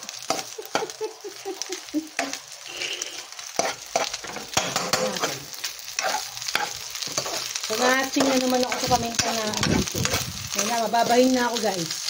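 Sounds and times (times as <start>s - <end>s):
frying sizzle: 0.0s - 12.0s
metal spatula scraping a wok: 2.6s - 10.4s.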